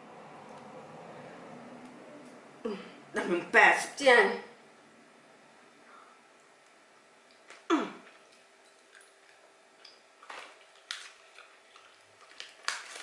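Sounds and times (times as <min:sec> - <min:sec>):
plastic candy wrapper crinkling: 0:10.2 - 0:13.0.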